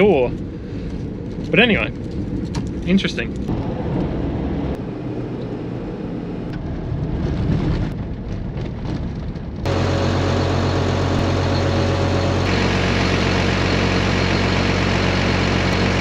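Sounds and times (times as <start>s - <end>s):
diesel engine idling with whine: 0.0s - 6.8s, 9.6s - 16.0s
vehicle driving from inside cab: 0.0s - 16.0s.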